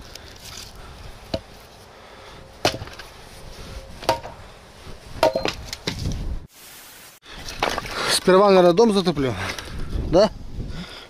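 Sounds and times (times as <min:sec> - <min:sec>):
firewood pieces clacking: 0:07.4 - 0:08.0.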